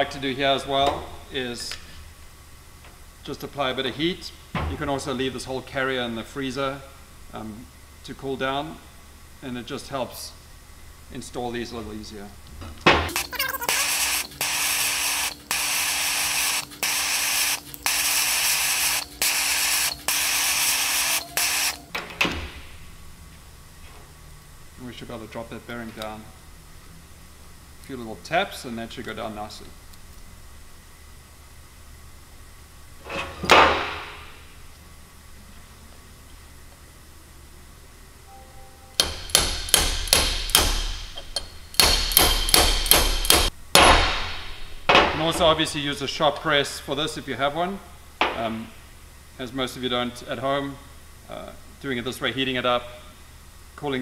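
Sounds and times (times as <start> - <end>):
faint hum: 0.0 - 54.0
heating tool hissing: 13.1 - 21.9
hammer striking metal: 38.9 - 45.3.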